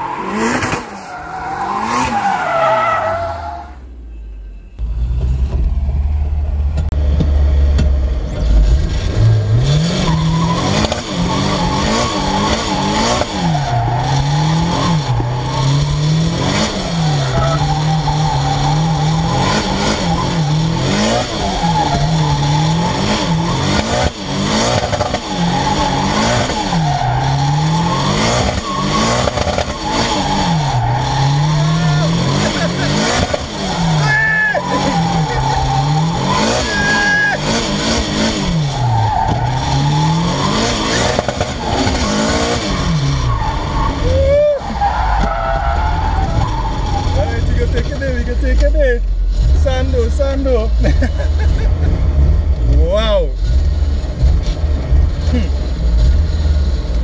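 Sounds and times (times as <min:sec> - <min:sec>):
car engine revving: 0:00.0 - 0:04.0, 0:04.8 - 0:57.0
tyre squeal: 0:33.5 - 0:37.5.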